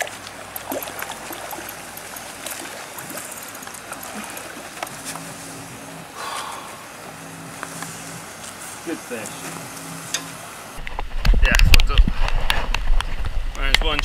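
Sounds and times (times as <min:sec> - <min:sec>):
water splashing and trickling: 0:00.0 - 0:05.1
low pulsing drone: 0:00.0 - 0:10.9
sharp clicks: 0:00.5 - 0:04.9.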